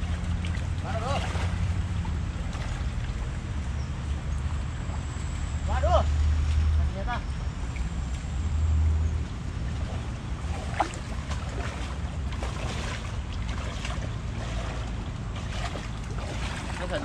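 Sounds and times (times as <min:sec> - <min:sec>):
water sloshing around wading legs: 0:00.0 - 0:06.8, 0:09.3 - 0:17.0.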